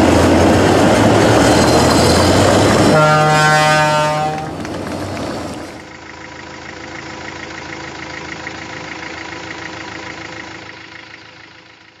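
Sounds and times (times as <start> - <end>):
engine idling: 4.0 - 12.0.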